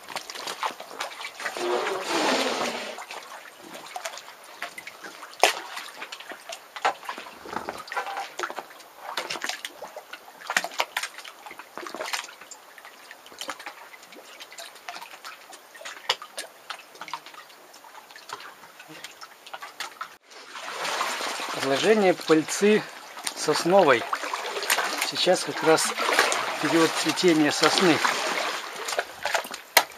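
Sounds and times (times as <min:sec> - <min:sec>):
water drips and plops: 0:00.0 - 0:01.8, 0:03.0 - 0:29.9
small waves lapping on rocks: 0:20.6 - 0:29.9.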